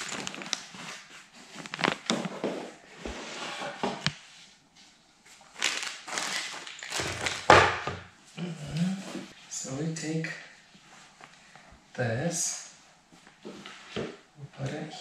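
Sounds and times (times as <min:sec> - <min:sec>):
plastic bag crinkling: 0:00.0 - 0:02.3, 0:05.5 - 0:07.6
rustling: 0:00.0 - 0:07.5
panels laid on wooden floor: 0:00.0 - 0:09.5, 0:13.0 - 0:14.3.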